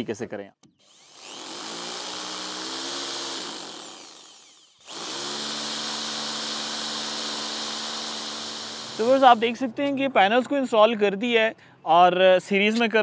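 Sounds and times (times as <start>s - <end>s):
electric drill whining: 0.7s - 9.6s.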